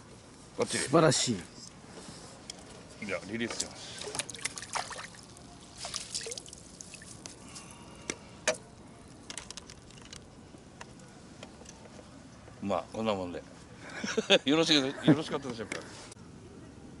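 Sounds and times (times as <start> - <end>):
pond water splashing and dripping: 3.9 - 7.3.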